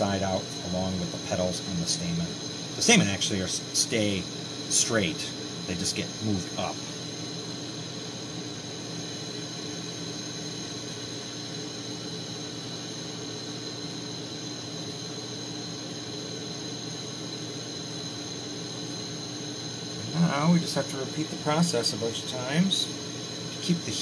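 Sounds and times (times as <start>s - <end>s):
torch burning with steady hiss: 0.0s - 24.0s.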